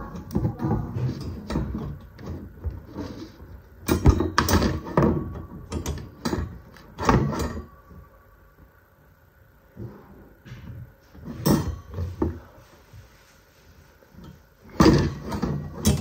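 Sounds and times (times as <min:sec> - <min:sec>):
metal wire rack rattling: 0:14.7 - 0:16.0.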